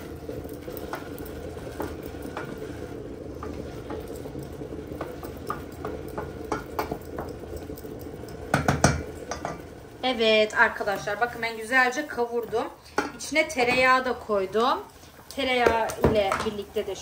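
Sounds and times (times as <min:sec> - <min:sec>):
vegetables sauteing in oil: 0:00.0 - 0:17.0
water boiling in pot: 0:00.0 - 0:17.0
spoon scraping and knocking pot: 0:05.0 - 0:07.6, 0:08.4 - 0:09.7, 0:12.4 - 0:13.9.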